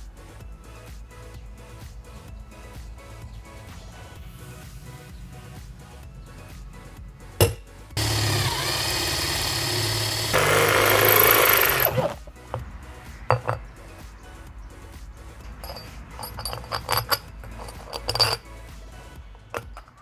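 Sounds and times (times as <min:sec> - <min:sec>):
background music: 0:00.0 - 0:20.0
power drill boring through steel: 0:08.0 - 0:12.3.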